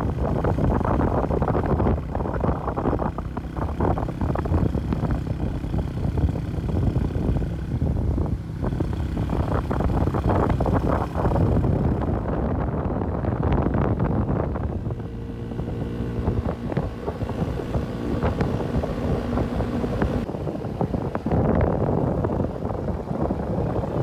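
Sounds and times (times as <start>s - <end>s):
motorbike engine running: 0.0s - 24.0s
wind rushing over microphone: 0.0s - 24.0s.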